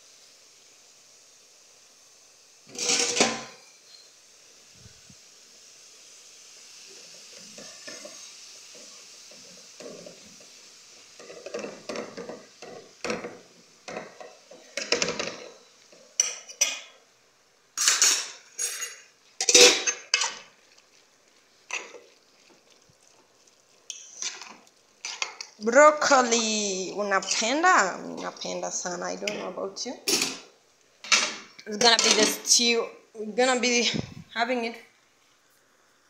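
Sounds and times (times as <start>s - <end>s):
faint steady hiss: 0.0s - 36.0s
metal spoon scraping cooking pots: 2.7s - 3.5s, 17.8s - 20.5s, 23.9s - 25.5s, 27.1s - 28.3s, 31.0s - 32.5s.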